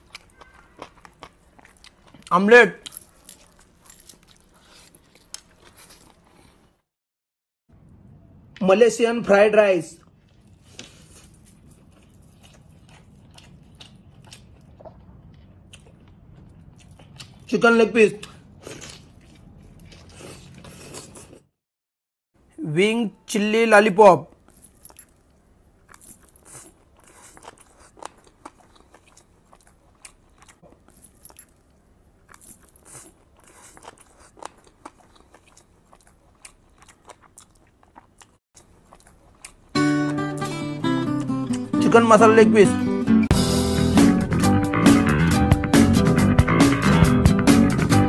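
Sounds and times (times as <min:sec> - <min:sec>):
person chewing food: 0:00.0 - 0:06.9, 0:10.0 - 0:17.5, 0:18.2 - 0:21.5, 0:24.3 - 0:41.7.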